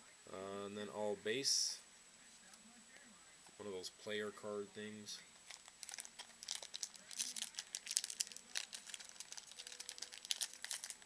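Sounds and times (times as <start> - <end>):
cards flicking and rustling: 5.4 - 11.0.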